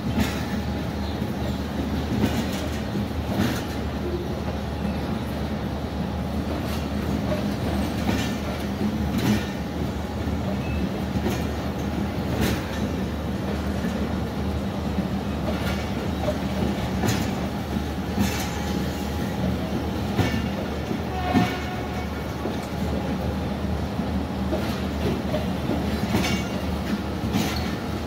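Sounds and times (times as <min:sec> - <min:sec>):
train wheels clacking over rail joints: 0:00.0 - 0:05.0, 0:06.3 - 0:23.3, 0:24.4 - 0:28.0.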